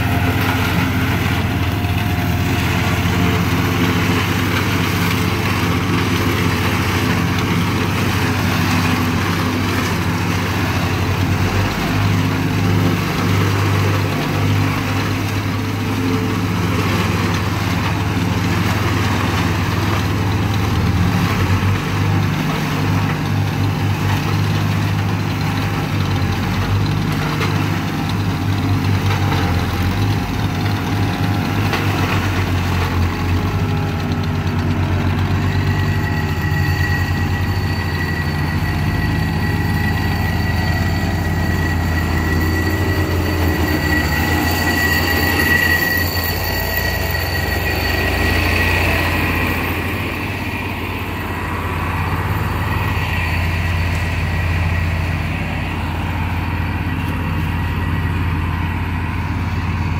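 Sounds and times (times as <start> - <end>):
forage chopper cutting corn: 0.0 - 36.3
tractor engine under load: 0.0 - 59.9.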